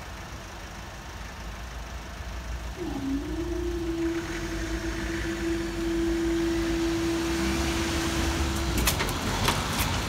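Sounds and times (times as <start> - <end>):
barrier motor whining: 2.7 - 10.0.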